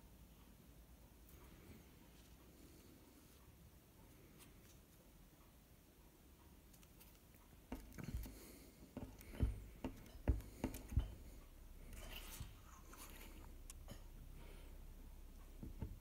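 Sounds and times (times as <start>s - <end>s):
soft handling knocks and bumps: 7.0s - 14.2s, 15.4s - 16.0s.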